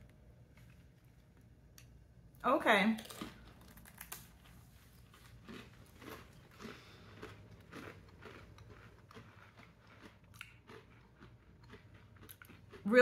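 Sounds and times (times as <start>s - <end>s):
cracker crunching: 3.0s - 12.9s.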